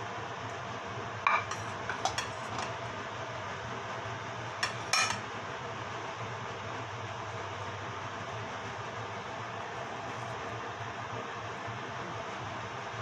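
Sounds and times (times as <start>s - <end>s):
low hum and hiss: 0.0s - 13.0s
ceramic bowl clinking: 1.3s - 2.7s, 4.6s - 5.2s.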